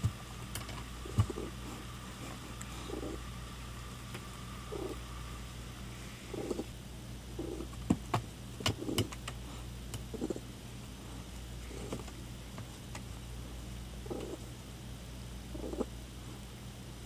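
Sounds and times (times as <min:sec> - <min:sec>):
cat purring: 0:01.0 - 0:03.3, 0:04.6 - 0:05.1, 0:06.2 - 0:06.8, 0:07.4 - 0:07.8, 0:08.6 - 0:09.2, 0:10.1 - 0:10.5, 0:14.0 - 0:14.5, 0:15.5 - 0:16.0.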